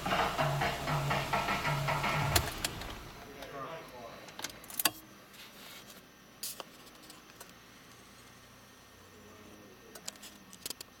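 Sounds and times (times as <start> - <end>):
car engine idling: 0.0 - 3.2.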